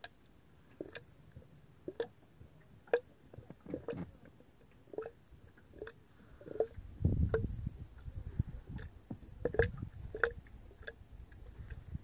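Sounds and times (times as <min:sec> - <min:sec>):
waves lapping against a boat hull: 0:00.0 - 0:12.0.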